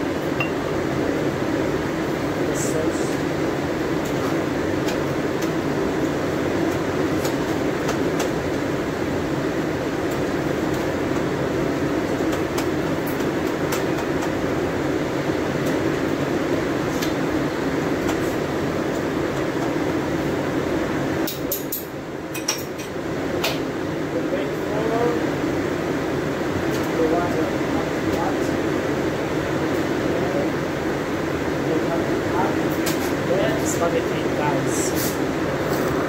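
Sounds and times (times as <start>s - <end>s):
steady rushing noise: 34.2s - 36.0s.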